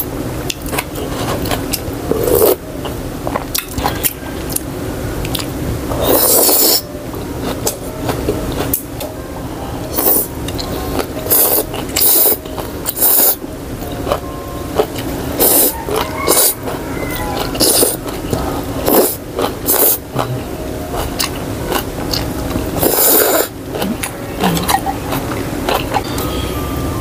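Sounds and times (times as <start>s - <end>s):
slurping noodles: 6.0s - 6.8s, 17.5s - 18.0s, 18.8s - 20.4s, 22.8s - 24.0s
chewing: 14.8s - 26.1s.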